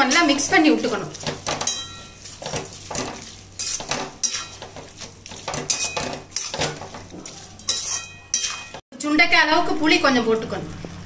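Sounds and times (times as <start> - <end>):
metal ladle scraping a pan: 0.0 - 8.8.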